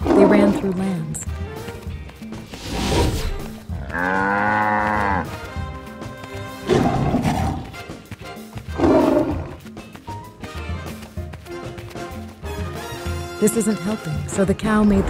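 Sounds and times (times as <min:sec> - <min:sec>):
background music: 0:00.0 - 0:15.0
big cat roars: 0:03.8 - 0:05.3, 0:06.7 - 0:07.8
cartoon cow moo: 0:03.8 - 0:05.3.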